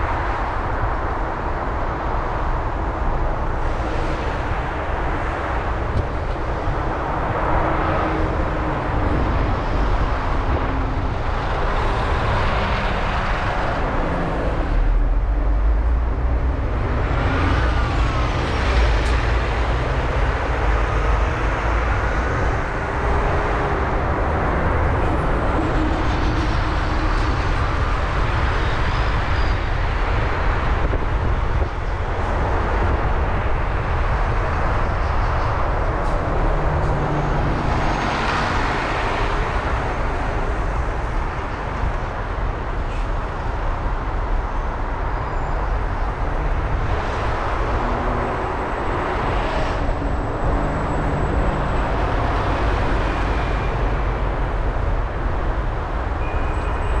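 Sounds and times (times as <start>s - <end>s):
car driving in traffic: 0.0s - 57.0s.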